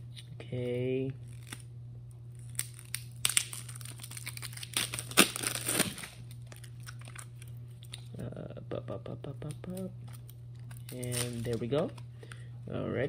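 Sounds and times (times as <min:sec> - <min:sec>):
plastic wrapping crinkling: 0:02.4 - 0:08.1, 0:09.7 - 0:12.0.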